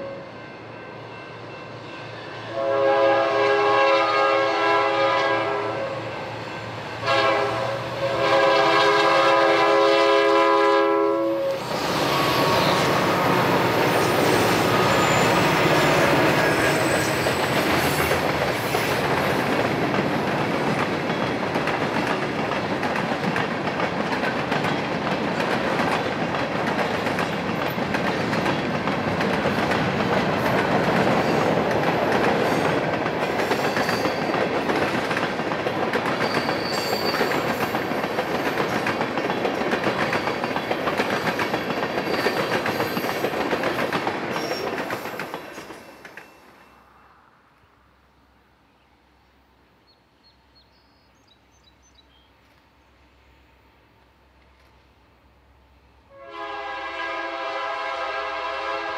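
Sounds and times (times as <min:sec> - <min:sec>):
diesel locomotive engine: 0:00.0 - 0:47.3
train wheels clacking over rail joints: 0:11.5 - 0:46.6
faint high wheel squeals: 0:13.9 - 0:15.6, 0:16.3 - 0:17.5, 0:36.2 - 0:37.5.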